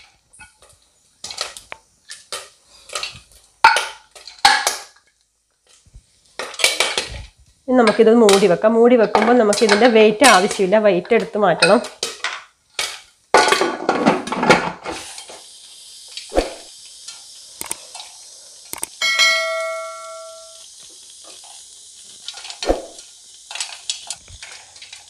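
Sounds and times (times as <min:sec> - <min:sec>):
hot oil sizzling: 0:00.0 - 0:25.0
popcorn kernels popping: 0:00.0 - 0:25.0
bell-like chime: 0:19.0 - 0:20.6.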